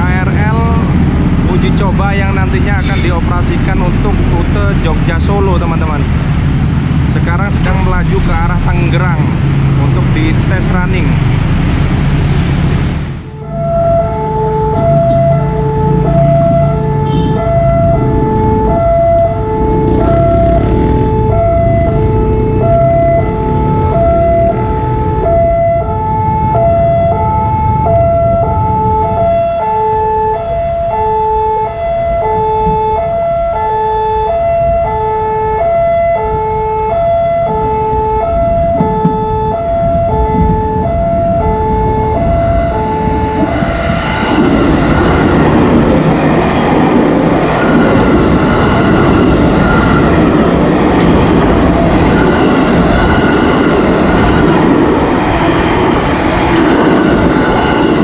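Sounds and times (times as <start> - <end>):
electric train rushing past: 0.0 - 58.0
two-note crossing alarm: 13.4 - 44.0.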